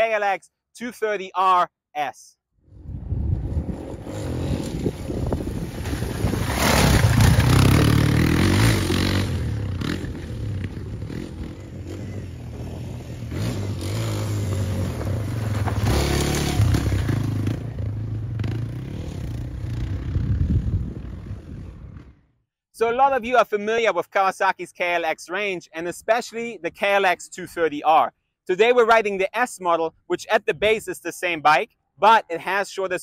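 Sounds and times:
dirt bike engine revving: 0:03.3 - 0:22.2.

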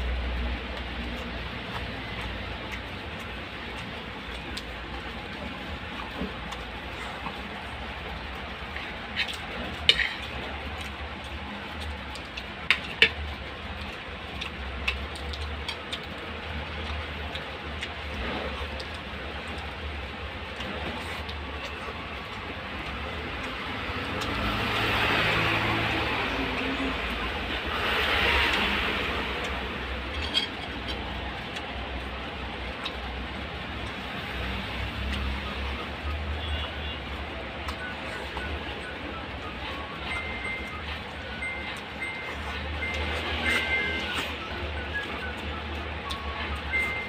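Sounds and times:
eating sounds: 0:00.0 - 0:47.0
sharp clicks and smacks: 0:00.4 - 0:26.2.

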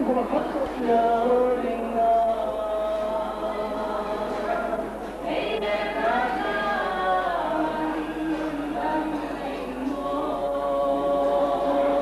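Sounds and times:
voices singing together: 0:00.0 - 0:12.0.

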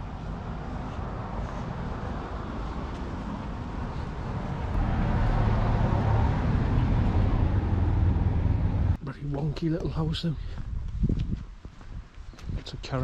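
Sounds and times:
low rumbling outdoor noise: 0:00.0 - 0:10.2.

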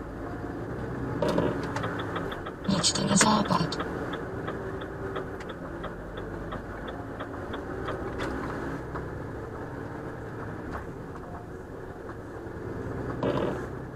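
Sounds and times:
truck engine running: 0:00.0 - 0:13.9
turn signal relay ticking: 0:01.3 - 0:08.2.

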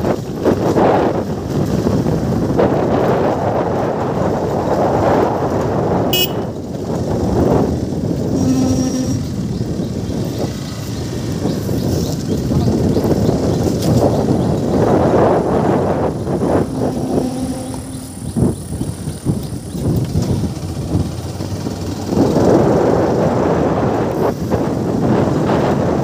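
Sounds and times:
wind buffeting microphone: 0:00.0 - 0:26.0
short flat toot: 0:06.2 - 0:06.5.

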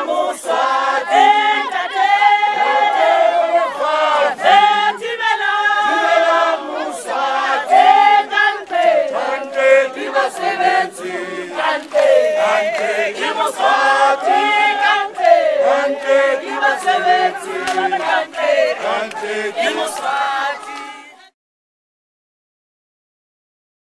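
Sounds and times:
crowd singing in chorus: 0:00.0 - 0:21.4.

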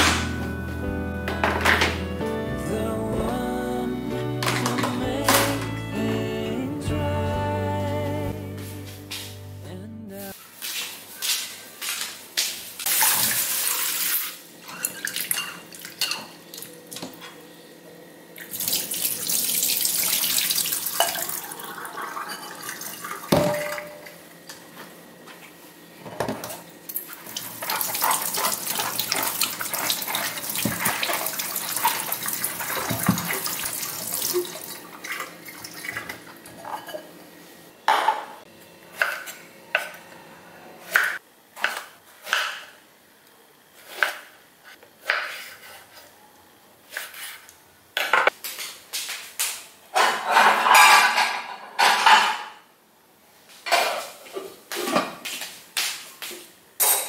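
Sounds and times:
kitchenware clattering: 0:01.3 - 0:02.0, 0:14.6 - 0:16.4, 0:21.0 - 0:24.2, 0:34.2 - 0:37.1, 0:37.9 - 0:38.4, 0:49.9 - 0:52.6, 0:53.6 - 0:55.2, 0:56.8 - 0:57.0
tap water running into sink: 0:18.4 - 0:23.8, 0:27.3 - 0:36.2.

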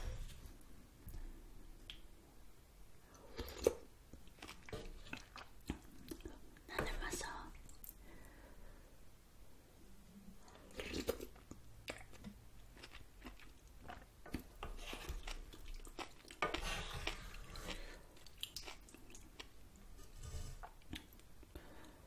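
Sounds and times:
chewing noodles: 0:03.4 - 0:06.4, 0:10.5 - 0:19.6.

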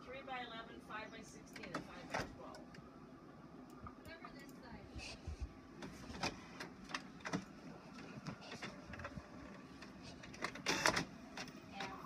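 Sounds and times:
inkjet printer clicking and clattering: 0:05.8 - 0:12.0.

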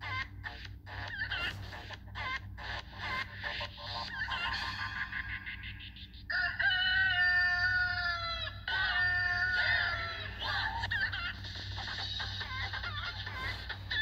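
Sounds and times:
background music: 0:09.1 - 0:14.0.

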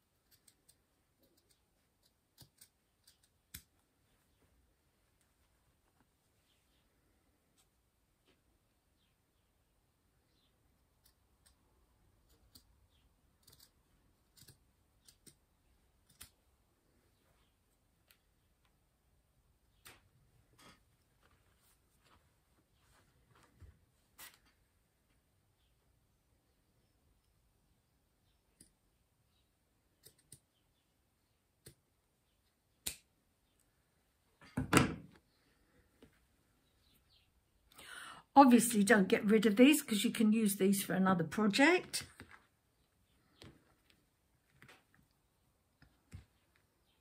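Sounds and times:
scissors snipping yarn: 0:00.0 - 0:03.9, 0:10.9 - 0:12.8, 0:13.4 - 0:16.5
scissors snipping: 0:00.2 - 0:03.8.

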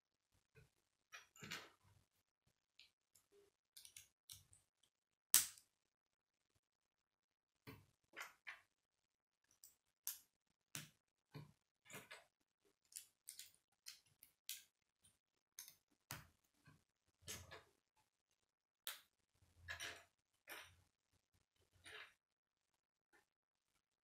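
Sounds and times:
plastic pieces clicking together: 0:03.8 - 0:04.6, 0:12.8 - 0:14.7.

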